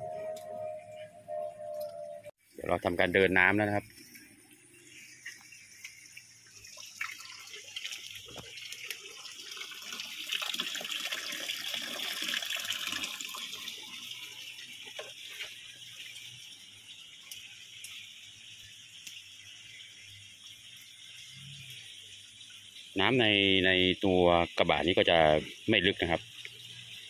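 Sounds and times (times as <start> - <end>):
water trickling: 0.0 - 27.0
water splashing down drain: 4.9 - 23.7.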